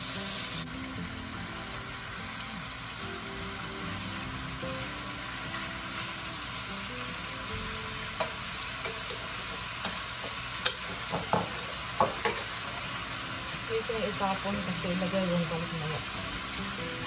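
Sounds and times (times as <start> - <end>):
steady hiss: 0.0 - 17.0
metal tongs clinking on pan: 8.2 - 12.6.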